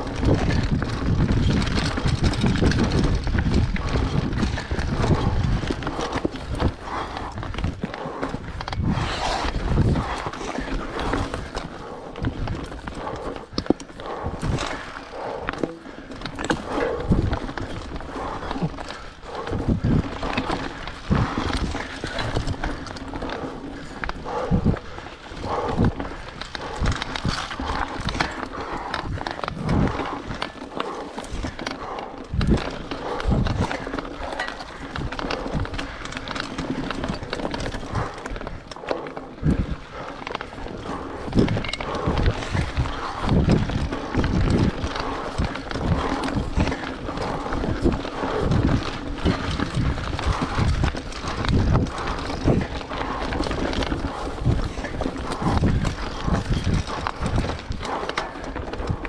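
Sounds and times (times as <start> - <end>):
bike rattling on rough trail: 0.0 - 59.0.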